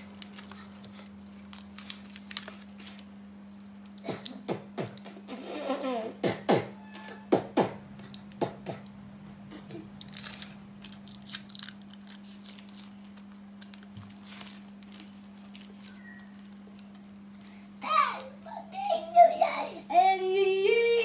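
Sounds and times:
wires clicking and rustling: 0.0 - 5.1, 8.0 - 18.3
low electrical hum: 0.0 - 21.0.

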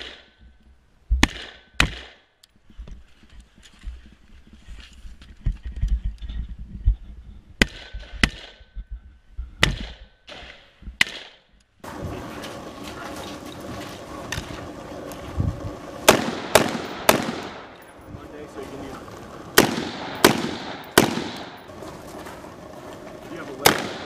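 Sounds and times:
rifle shots: 16.0 - 17.9, 19.5 - 21.7, 23.6 - 24.0.

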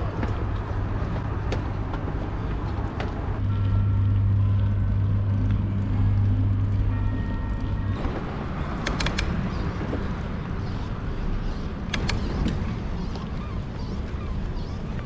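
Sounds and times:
bicycle tyre and wind rumble: 0.0 - 15.0
steady low hum: 0.0 - 15.0
sharp clicks: 8.8 - 9.4, 11.9 - 12.6.

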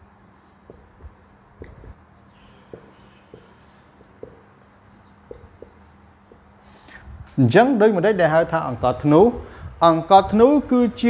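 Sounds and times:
marker writing on whiteboard: 0.0 - 7.0.

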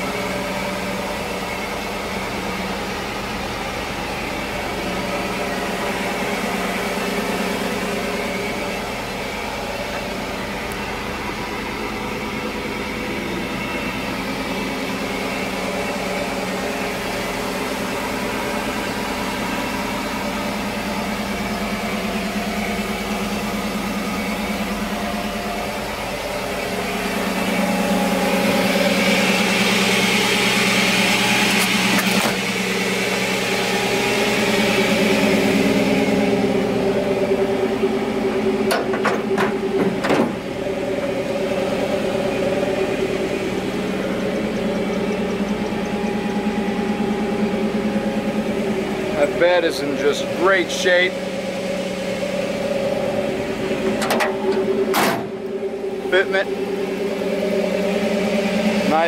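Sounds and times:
truck engine running: 0.0 - 59.0.

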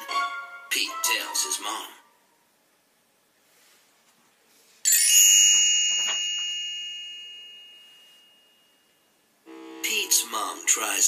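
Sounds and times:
bright bell chime: 4.9 - 9.1.

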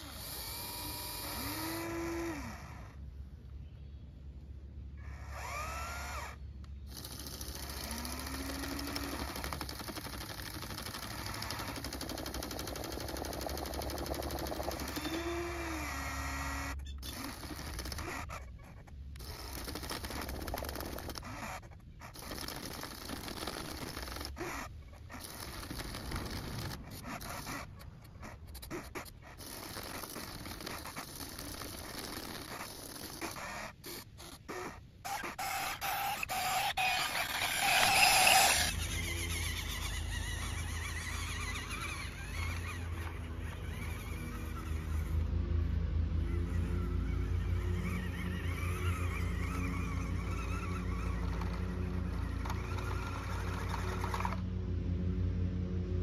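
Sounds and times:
electric motors and gears whining: 0.0 - 3.3, 4.8 - 56.0
dirt scraping: 35.0 - 45.1.

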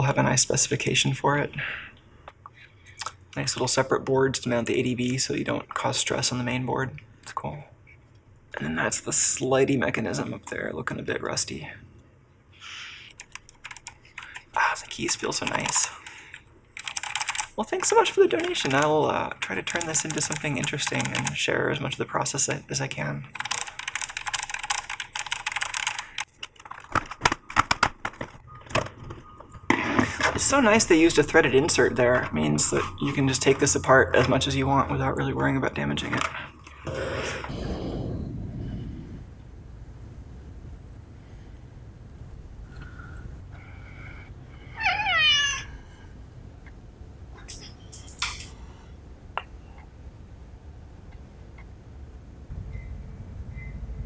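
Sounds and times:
typing on mechanical keyboard: 13.2 - 14.4, 16.8 - 17.6, 19.6 - 21.4, 23.4 - 26.8
keyboard being handled: 23.4 - 29.2
cat meowing: 44.7 - 45.9.

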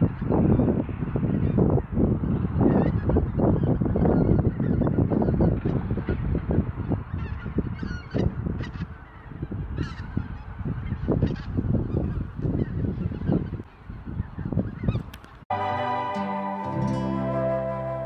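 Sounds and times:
geese honking in flight: 2.7 - 13.5, 15.5 - 18.0.

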